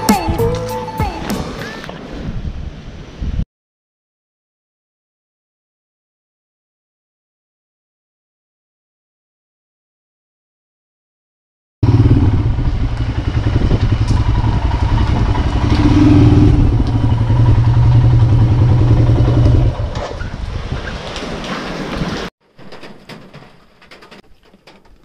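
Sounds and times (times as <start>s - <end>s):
road noise: 0.0s - 3.4s, 11.8s - 22.3s
motorcycle engine rumble: 11.8s - 22.3s.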